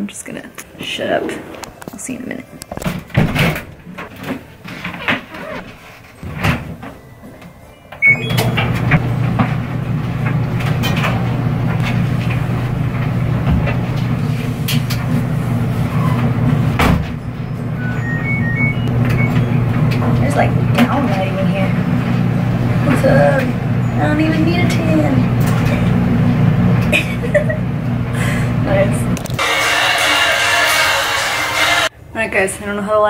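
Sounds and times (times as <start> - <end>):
clothes dryer running: 0.0 - 31.9
short electronic beeps: 8.0 - 8.6, 17.5 - 19.7.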